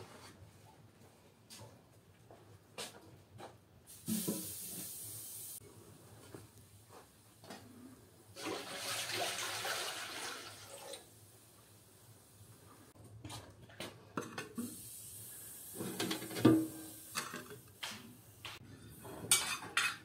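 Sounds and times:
water pouring into metal pot: 8.4s - 11.1s.

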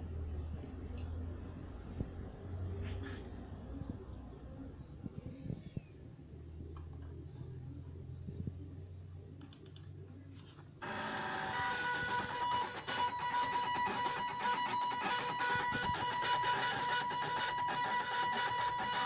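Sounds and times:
stepper motors whining buzz: 10.8s - 19.0s.

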